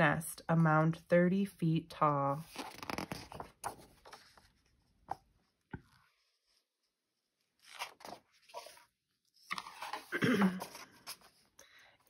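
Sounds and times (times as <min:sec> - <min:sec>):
paper page turning: 0:02.3 - 0:05.2, 0:07.5 - 0:11.5.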